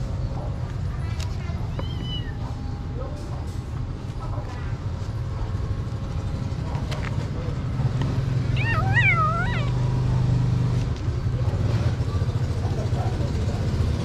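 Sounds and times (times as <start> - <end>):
kitten meowing: 8.5 - 9.8.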